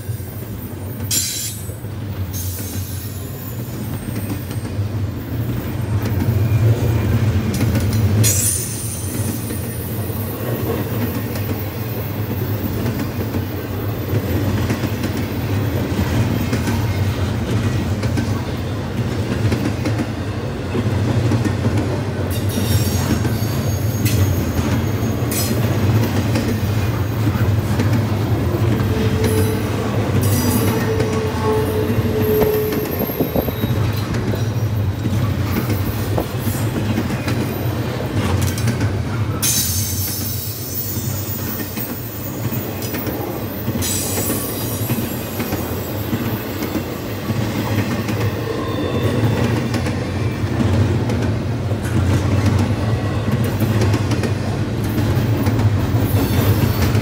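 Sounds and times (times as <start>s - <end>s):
train wheels rumbling on rails: 0.0s - 57.0s
high-pitched wheel squeal: 28.8s - 33.9s.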